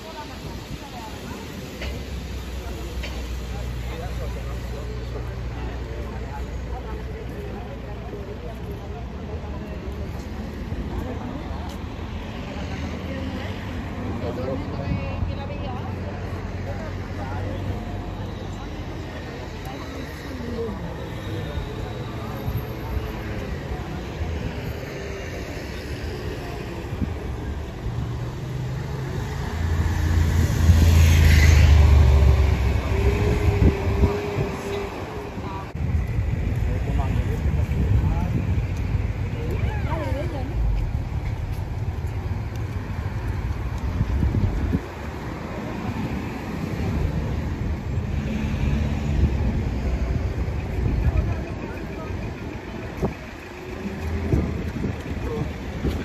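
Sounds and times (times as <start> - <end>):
heavy vehicle rumble: 0.0 - 56.0
street traffic passing: 0.0 - 56.0
vehicle engine passing: 28.0 - 35.4.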